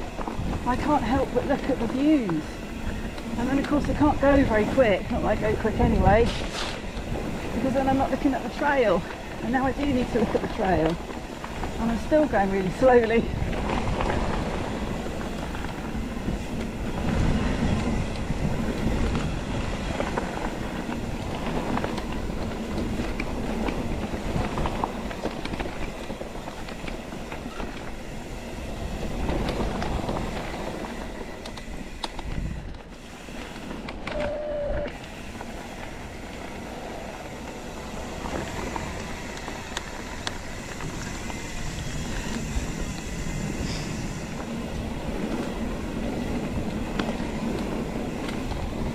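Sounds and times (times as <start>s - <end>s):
bike rattling and clicking: 0.0s - 48.9s
tyres rolling over dirt and stones: 0.0s - 48.9s
brief squeal: 34.1s - 35.0s.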